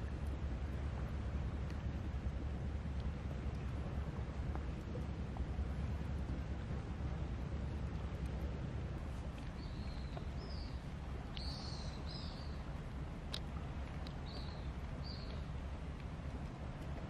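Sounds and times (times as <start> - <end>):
wind rumble on microphone: 0.0 - 17.0
bird chirping: 9.5 - 12.6, 14.2 - 15.5.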